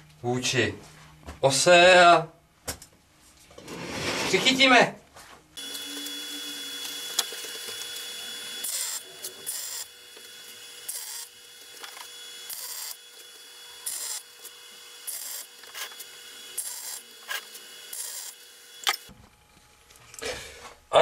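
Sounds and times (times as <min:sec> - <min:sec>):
arc welding crackling: 0:05.6 - 0:19.1.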